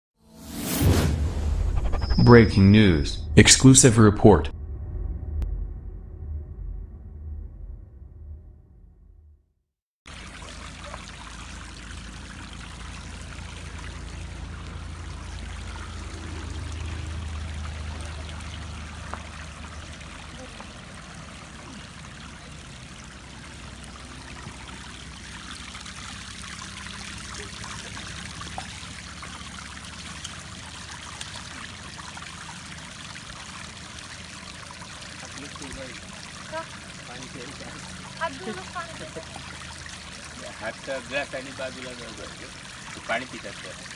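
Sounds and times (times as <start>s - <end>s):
low rumble: 0.4s - 9.6s
water trickling over stone: 10.1s - 43.9s.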